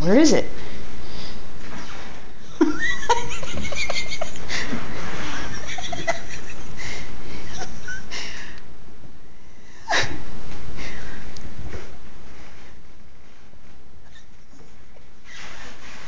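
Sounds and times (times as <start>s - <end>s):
person laughing and giggling: 2.5s - 8.3s.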